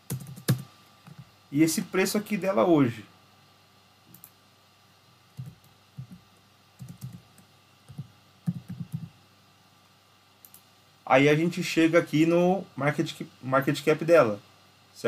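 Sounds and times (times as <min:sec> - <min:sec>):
soft keyboard keystrokes: 0:06.8 - 0:09.1.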